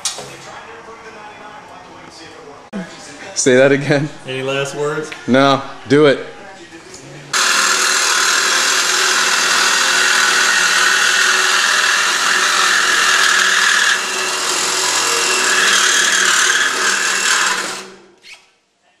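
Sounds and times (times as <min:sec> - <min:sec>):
power cutting tool cutting metal: 0:07.4 - 0:18.1.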